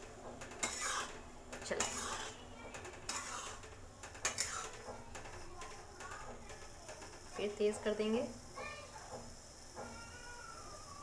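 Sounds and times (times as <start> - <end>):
metal spoon scraping a pot: 0.0 - 4.9
sugar syrup boiling: 0.0 - 11.0.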